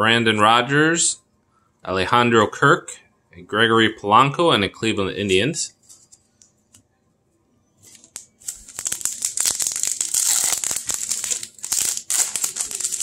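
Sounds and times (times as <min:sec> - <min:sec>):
plastic wrapper crinkling and tearing: 0:07.8 - 0:13.0.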